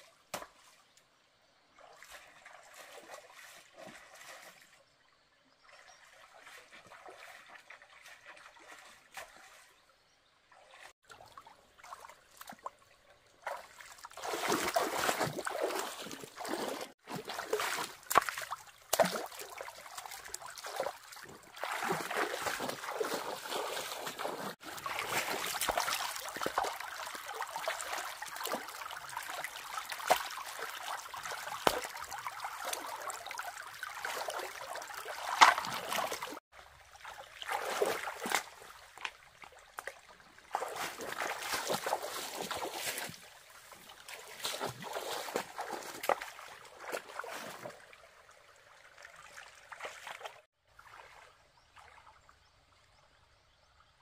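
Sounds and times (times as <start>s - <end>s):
hands splashing in stream water: 10.6s - 48.0s.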